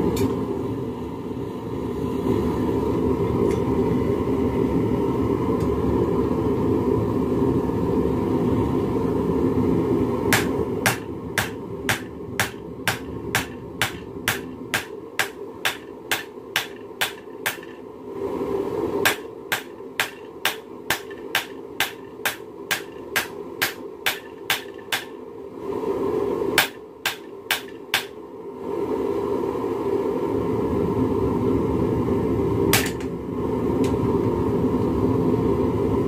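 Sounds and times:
hammer striking metal on anvil: 0:10.3 - 0:17.8, 0:19.0 - 0:25.2, 0:26.6 - 0:28.2, 0:32.7 - 0:33.1.

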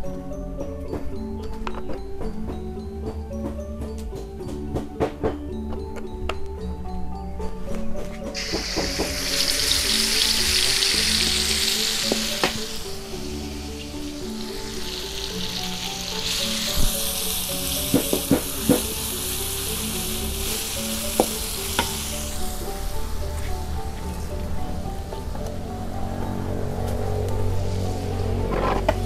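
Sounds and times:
oil sizzling in a wok: 0:08.4 - 0:25.1.

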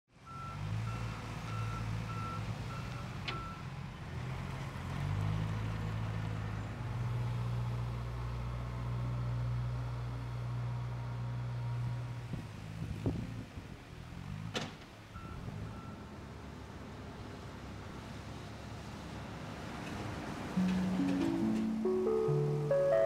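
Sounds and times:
vehicle backup alarm beeping: 0:00.3 - 0:03.6, 0:15.2 - 0:16.1
diesel engine running: 0:20.5 - 0:23.0.

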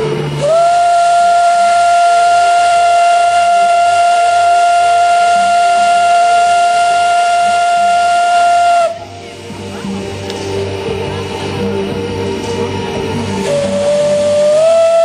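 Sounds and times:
steam locomotive whistle: 0:00.0 - 0:09.2, 0:13.2 - 0:15.0
steam hissing: 0:00.0 - 0:15.0.

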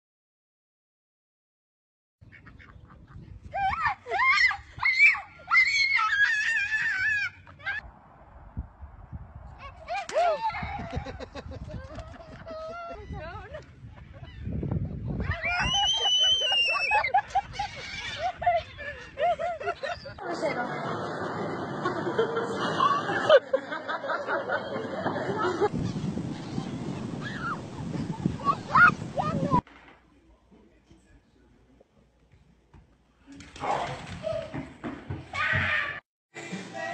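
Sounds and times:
children laughing and chattering: 0:09.6 - 0:29.6
child screaming: 0:28.4 - 0:29.6.

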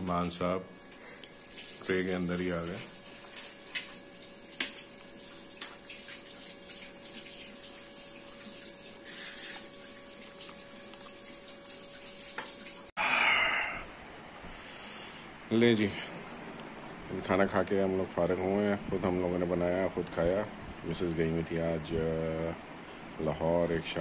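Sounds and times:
steady background hiss: 0:13.0 - 0:24.0.

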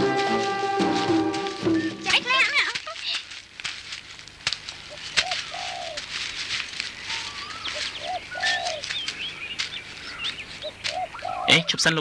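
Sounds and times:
small birds chirping: 0:01.7 - 0:12.0
dove cooing: 0:04.8 - 0:06.1, 0:07.0 - 0:09.0, 0:10.1 - 0:11.8.

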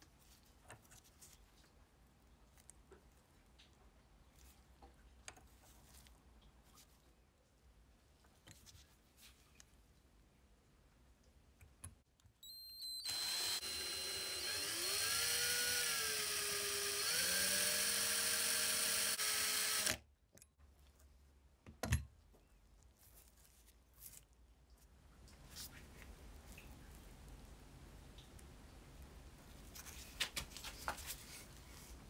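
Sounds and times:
electric drill whining: 0:12.4 - 0:20.0.

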